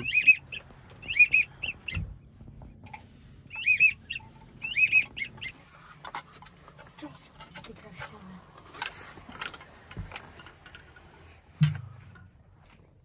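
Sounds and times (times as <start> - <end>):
whistled duck calls: 0.0 - 2.1, 3.5 - 5.6.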